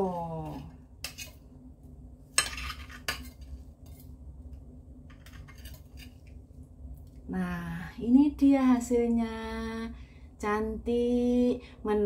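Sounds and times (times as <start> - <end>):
knife scraping a ceramic plate: 0.1 - 1.4, 2.3 - 4.2, 5.1 - 6.4.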